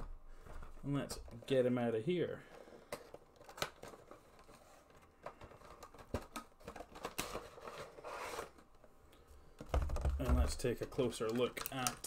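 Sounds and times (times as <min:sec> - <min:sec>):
packaging rustle: 0:02.5 - 0:08.8, 0:09.7 - 0:12.0.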